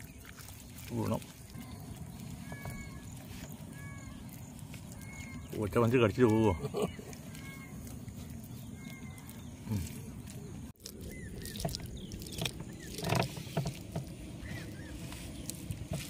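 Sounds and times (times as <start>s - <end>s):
hands squelching wet paste: 0.0s - 16.0s
small birds chirping: 0.0s - 16.0s
low background rumble: 1.4s - 6.0s.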